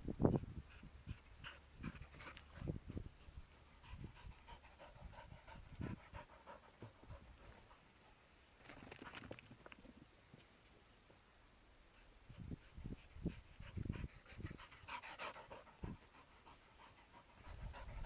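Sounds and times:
dog panting: 0:00.3 - 0:08.1, 0:12.0 - 0:18.0.

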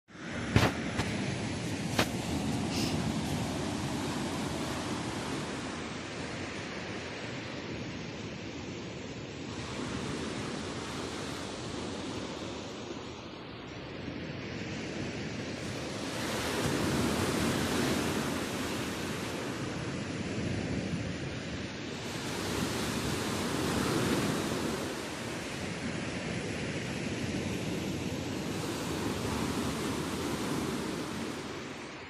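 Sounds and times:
surf washing up pebble beach: 0:00.1 - 0:07.4, 0:15.5 - 0:32.0.

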